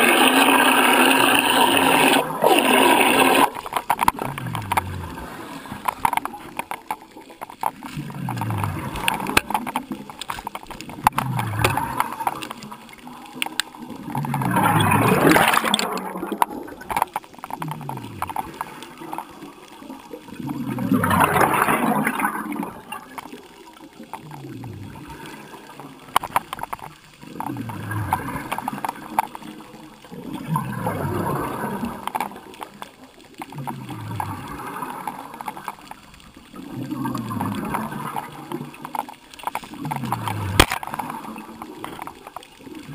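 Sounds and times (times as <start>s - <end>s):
bubbles gurgling underwater: 0.0s - 42.9s.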